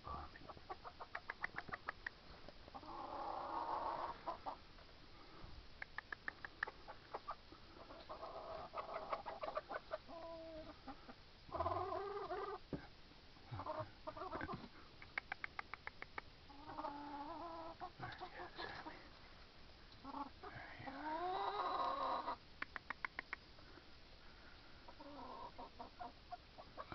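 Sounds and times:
chickens clucking: 0:00.1 - 0:04.8, 0:05.8 - 0:19.1, 0:19.9 - 0:23.7, 0:24.8 - 0:26.9
drawn-out chicken calls: 0:00.4 - 0:04.8, 0:06.2 - 0:12.7, 0:13.4 - 0:14.8, 0:16.5 - 0:19.0, 0:20.0 - 0:22.5, 0:24.7 - 0:26.9.

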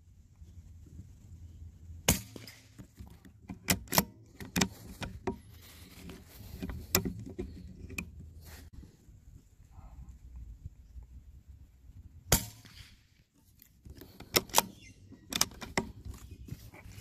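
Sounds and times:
rifle shot: 0:02.0 - 0:02.7, 0:12.3 - 0:13.0
rifle bolt clicks and knocks: 0:02.1 - 0:08.3, 0:13.4 - 0:17.0.

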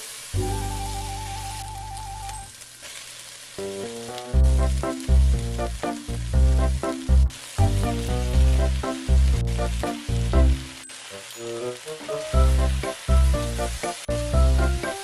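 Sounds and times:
vegetables sizzling in oil: 0:00.0 - 0:15.0
heavy bass notes: 0:00.4 - 0:02.4, 0:04.4 - 0:10.7, 0:12.4 - 0:14.8
background music melody: 0:00.4 - 0:02.6, 0:03.6 - 0:15.0.

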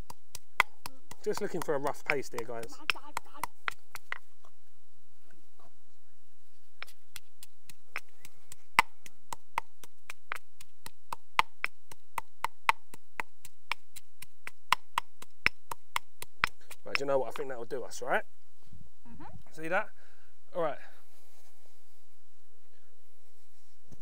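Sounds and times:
pestle pounding in a mortar: 0:00.0 - 0:04.2, 0:06.8 - 0:17.6.

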